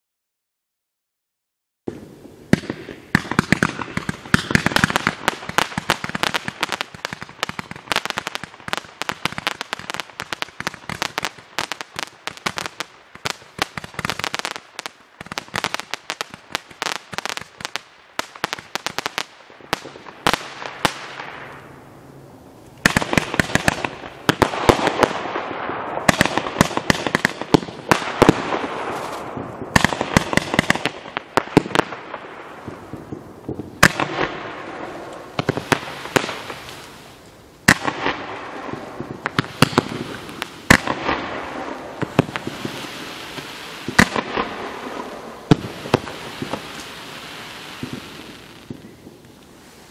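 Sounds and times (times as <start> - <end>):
fireworks crackle: 1.9 - 49.9
fireworks launch bangs: 22.8 - 49.9.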